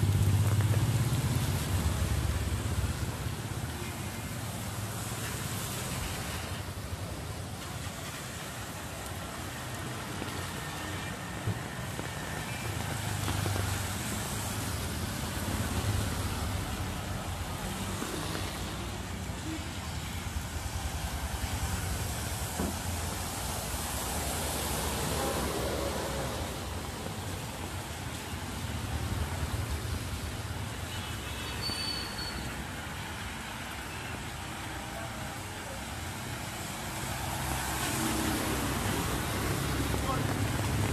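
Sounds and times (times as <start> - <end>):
car engines: 0.0 - 30.8, 32.8 - 40.9
bus passing: 0.0 - 30.9, 31.6 - 40.9
motorbike engines: 0.0 - 40.9
tyre hiss on wet road: 0.0 - 40.9.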